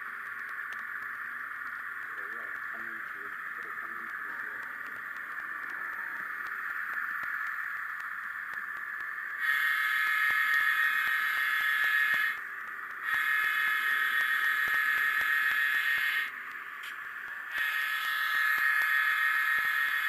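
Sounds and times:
steady steam hiss: 0.0 - 20.0
model steam whistle blasts: 9.4 - 12.4, 13.0 - 16.3, 17.5 - 20.0.

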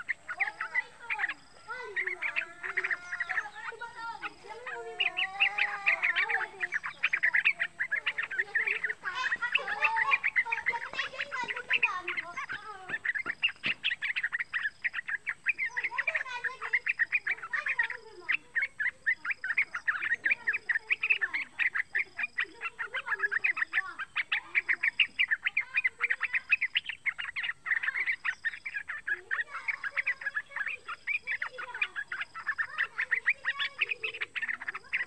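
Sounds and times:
bird chattering chirps: 0.0 - 35.0.

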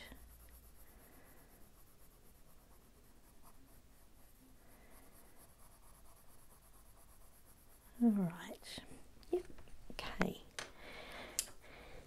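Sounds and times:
pencil scratching on paper: 0.0 - 8.8.

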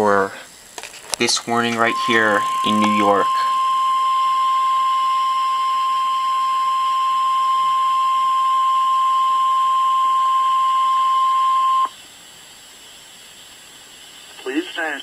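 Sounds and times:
high-pitched alarm tone: 1.5 - 11.9.

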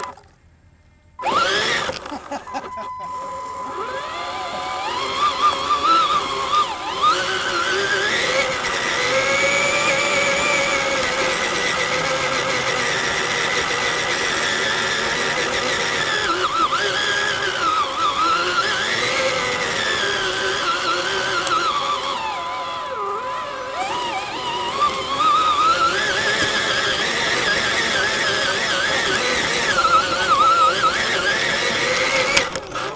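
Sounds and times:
toy truck electric motors whining: 0.0 - 32.9.

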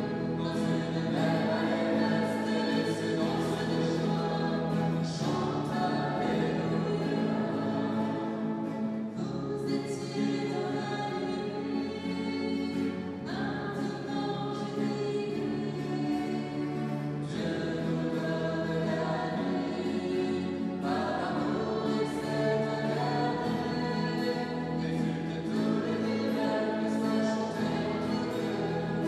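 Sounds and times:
choir singing a hymn: 0.0 - 29.0.

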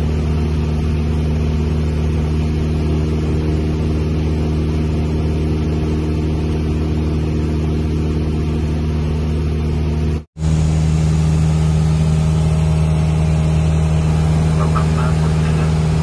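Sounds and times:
light aircraft engine drone in cabin: 0.0 - 16.0.

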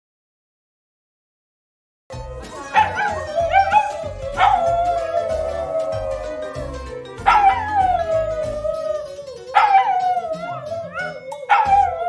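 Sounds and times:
background music with steady beat: 2.1 - 12.0
dog howling: 2.3 - 12.0.

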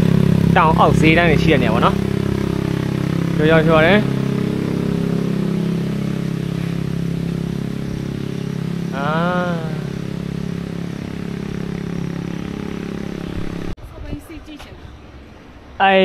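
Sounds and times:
engine running steadily: 0.0 - 13.8
person calling out: 8.9 - 10.0.

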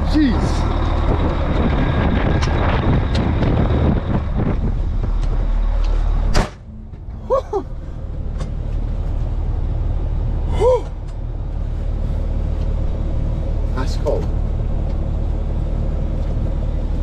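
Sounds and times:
wind noise: 0.0 - 9.7
diesel loader engine running: 0.0 - 17.0.

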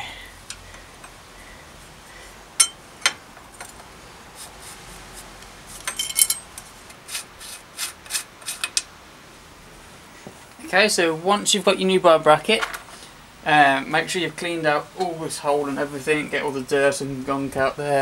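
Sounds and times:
metallic scraping and clinking: 2.6 - 3.8, 5.7 - 8.9.

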